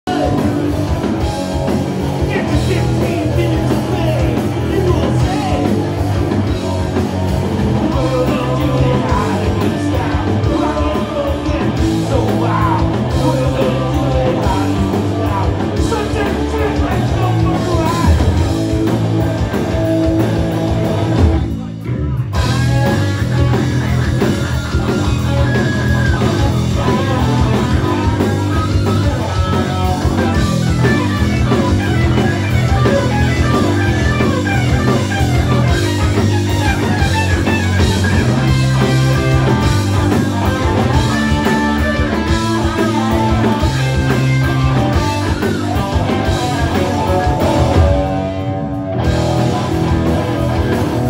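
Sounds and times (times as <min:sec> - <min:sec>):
drums: 0:00.0 - 0:51.0
electric guitars: 0:00.0 - 0:51.0
live rock band playing: 0:00.0 - 0:51.0
person singing: 0:02.2 - 0:06.9, 0:07.7 - 0:18.4.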